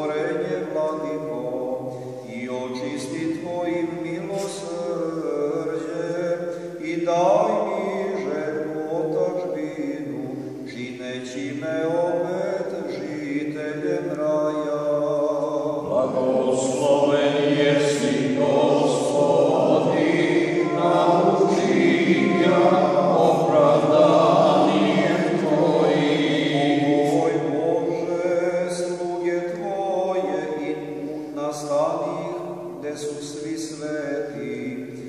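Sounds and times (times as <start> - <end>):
voices singing liturgical chant: 0.0 - 35.0.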